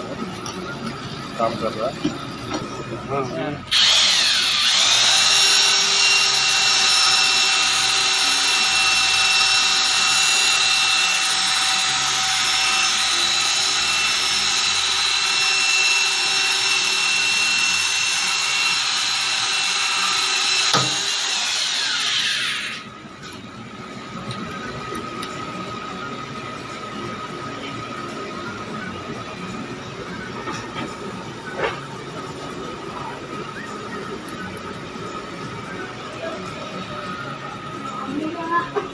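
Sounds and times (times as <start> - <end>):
electric drill drilling into metal: 3.7 - 22.9.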